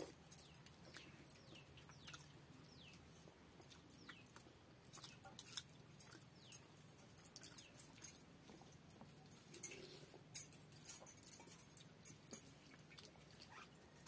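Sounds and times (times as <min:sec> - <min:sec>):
bangles jingling: 0:00.0 - 0:02.3, 0:05.3 - 0:12.6
wet chewing sounds: 0:00.0 - 0:10.3, 0:11.4 - 0:14.0.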